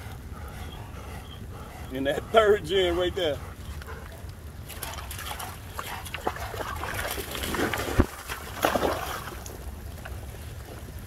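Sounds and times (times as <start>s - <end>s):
dogs panting: 0.0s - 7.5s
dogs splashing through water: 0.0s - 11.0s.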